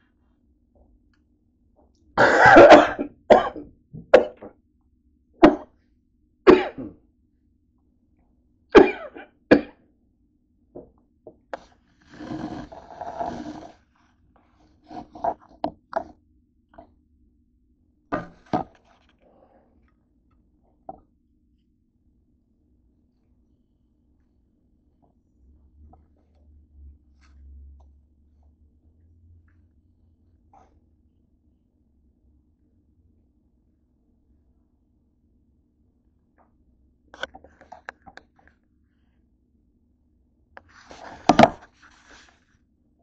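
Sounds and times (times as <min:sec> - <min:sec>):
person coughing: 0:02.2 - 0:04.5, 0:05.4 - 0:05.6, 0:06.5 - 0:07.0, 0:08.8 - 0:09.8
soft rustling: 0:40.7 - 0:42.6.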